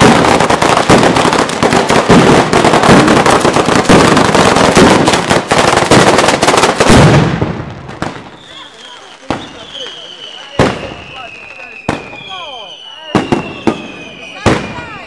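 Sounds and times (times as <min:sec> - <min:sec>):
firecrackers crackling: 0:00.0 - 0:15.0.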